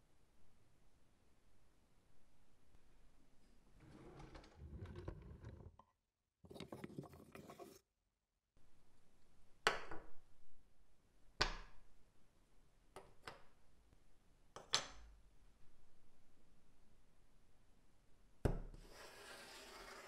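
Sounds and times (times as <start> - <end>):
drawer pulled open: 3.8 - 5.8.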